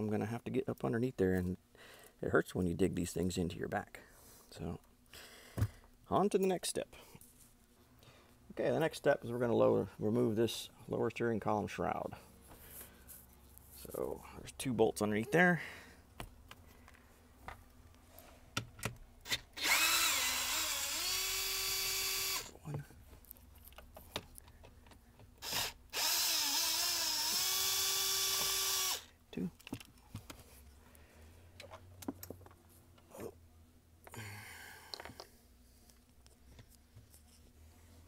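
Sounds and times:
clicks and knocks of parts: 29.6 - 30.4.

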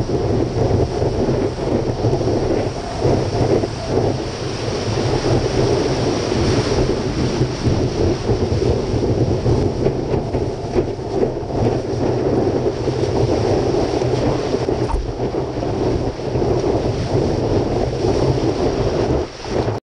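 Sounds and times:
wind rumble on microphone: 0.0 - 19.8.

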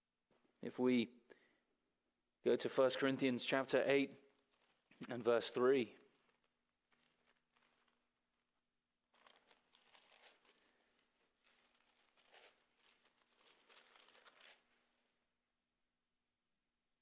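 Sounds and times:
pages being turned: 4.4 - 8.2, 9.1 - 14.9.

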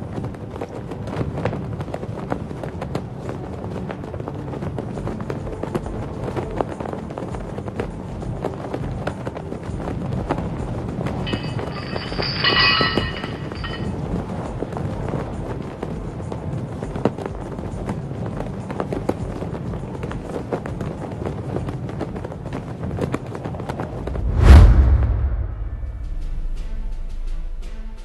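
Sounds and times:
action background music: 24.0 - 28.0.

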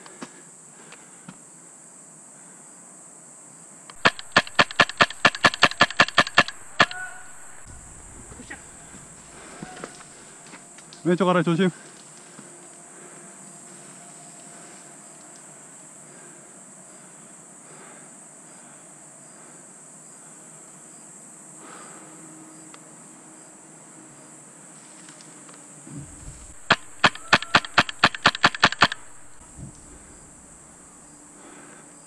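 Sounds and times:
insects droning: 0.0 - 32.0
airsoft gun shots: 4.0 - 9.7, 25.9 - 30.3.

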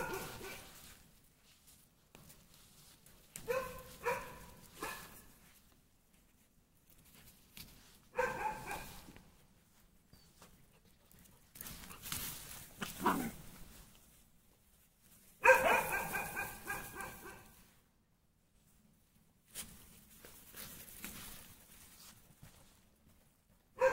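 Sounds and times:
puppy yelp: 8.2 - 9.1, 15.4 - 17.5.

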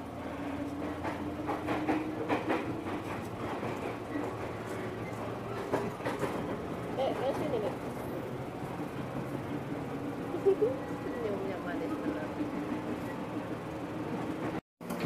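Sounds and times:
train car rumble and hum: 0.0 - 15.0
knocks and clatter: 0.8 - 7.7.

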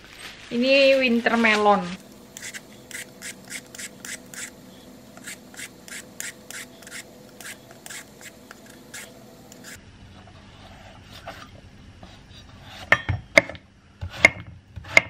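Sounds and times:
vegetable peeler scraping melon skin: 2.0 - 9.8.

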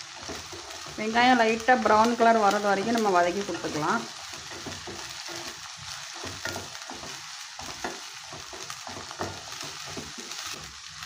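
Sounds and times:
onions sizzling in oil: 0.0 - 11.0
spatula scraping a pan: 2.9 - 11.0.

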